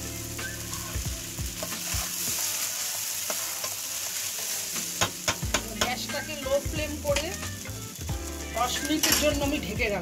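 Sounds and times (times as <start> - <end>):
fried rice sizzling in a wok: 0.0 - 10.0
spatula knocking and scraping pan: 5.0 - 7.4.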